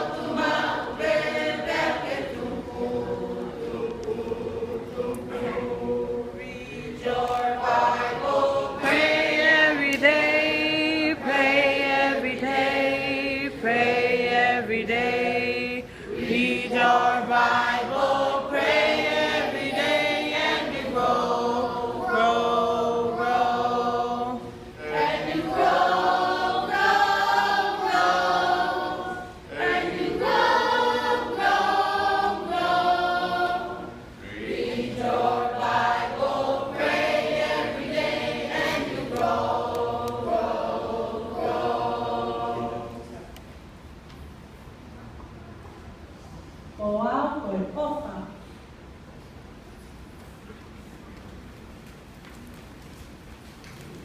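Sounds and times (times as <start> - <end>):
children singing together: 0.0 - 43.1.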